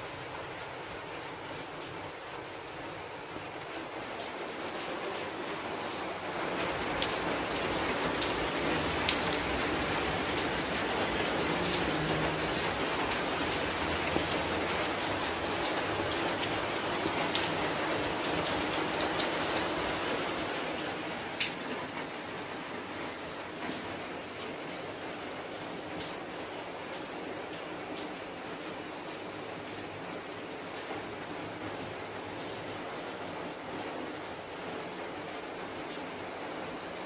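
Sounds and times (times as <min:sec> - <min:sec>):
steady rain falling: 0:00.0 - 0:37.0
sharp drip ticks: 0:07.0 - 0:16.6.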